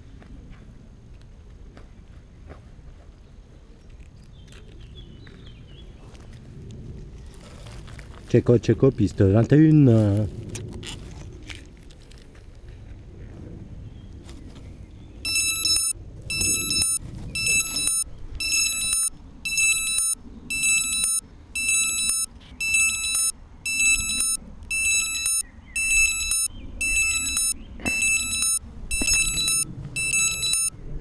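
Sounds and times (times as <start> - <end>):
shrill electronic warning beeps: 15.3 - 30.8.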